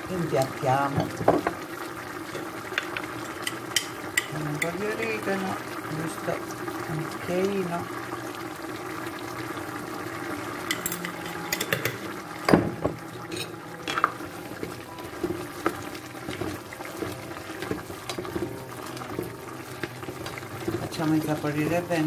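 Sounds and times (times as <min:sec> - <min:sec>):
stew simmering: 0:00.0 - 0:22.0
utensils scraping and knocking pot: 0:02.3 - 0:04.8, 0:10.6 - 0:12.1, 0:13.2 - 0:22.0.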